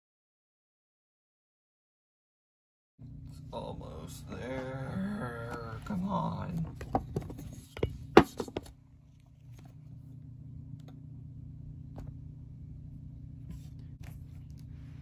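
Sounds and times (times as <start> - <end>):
low hum: 3.0 - 15.0.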